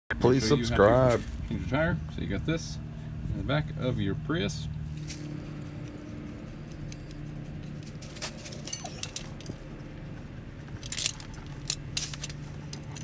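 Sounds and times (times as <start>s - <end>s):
low steady hum: 0.1s - 13.0s
metallic clinks of scissor jack: 6.8s - 9.6s, 10.8s - 13.0s.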